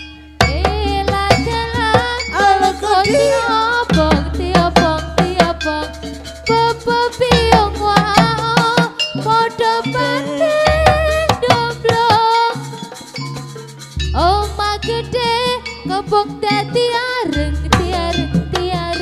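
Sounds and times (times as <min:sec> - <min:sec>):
drum and percussion beats: 0:00.0 - 0:19.0
wavering vibrato melody: 0:00.0 - 0:19.0
low steady bass tone: 0:14.0 - 0:16.4.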